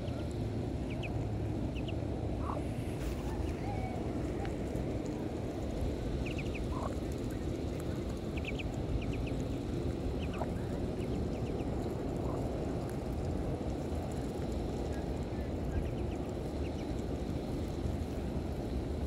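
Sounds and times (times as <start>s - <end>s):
ducklings peeping: 0.0s - 12.6s, 15.7s - 18.0s
low background noise: 0.0s - 19.0s.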